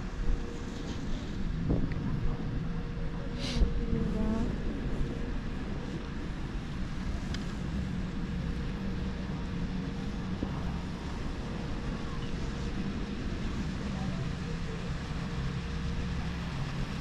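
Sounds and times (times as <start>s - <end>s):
faint steady hum: 0.0s - 17.0s
wind rumble on microphone: 0.0s - 17.0s.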